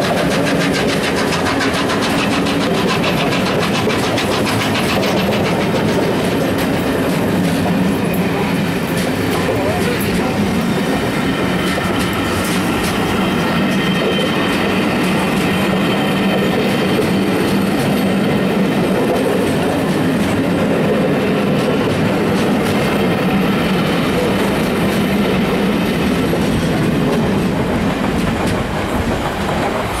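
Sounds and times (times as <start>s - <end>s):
train wheels rumbling on rails: 0.0s - 30.0s
wheels clicking over rail joints: 0.0s - 30.0s.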